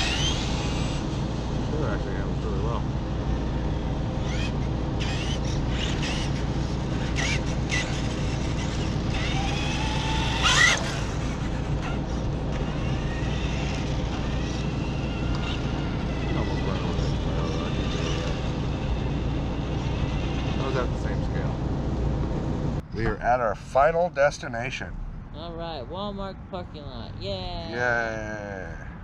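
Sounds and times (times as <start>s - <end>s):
rc car motors whining: 0.0s - 2.7s, 4.1s - 21.5s
steady low hum: 0.0s - 29.0s.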